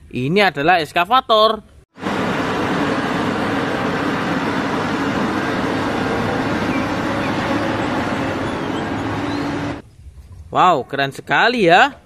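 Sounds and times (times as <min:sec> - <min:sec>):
excavator diesel engine under load: 0:02.0 - 0:09.8
low hum: 0:02.0 - 0:10.2.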